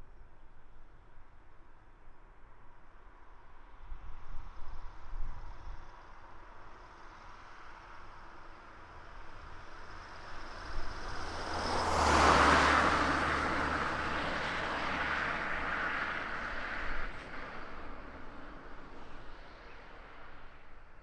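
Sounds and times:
vehicle passing by: 0:09.7 - 0:20.6.

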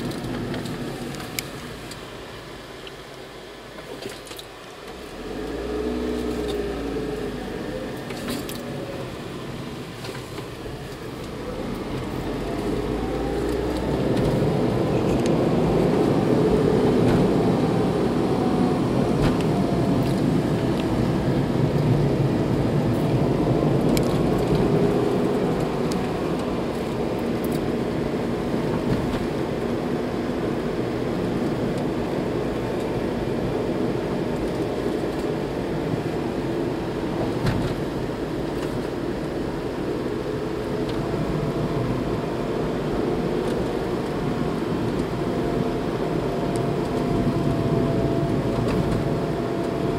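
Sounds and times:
car engine and tyre noise: 0:00.0 - 0:49.9.

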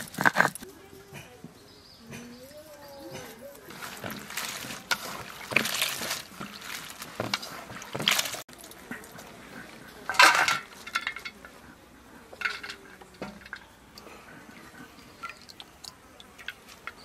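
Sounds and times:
water splashing and dripping: 0:03.5 - 0:11.6, 0:12.3 - 0:17.0.

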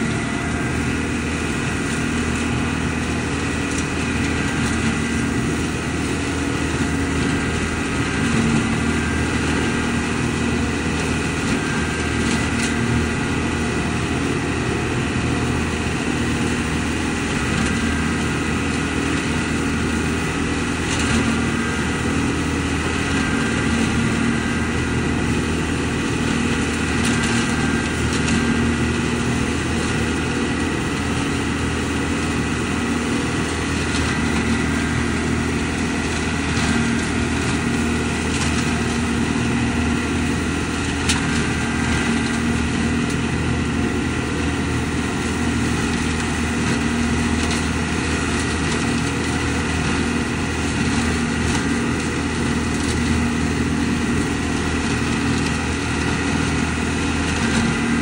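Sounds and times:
leaf vacuum engine droning: 0:00.0 - 0:58.0.

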